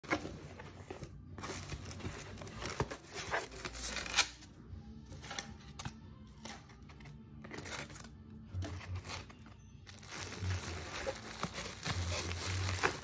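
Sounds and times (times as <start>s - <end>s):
packing material rustling: 9.9s - 13.0s.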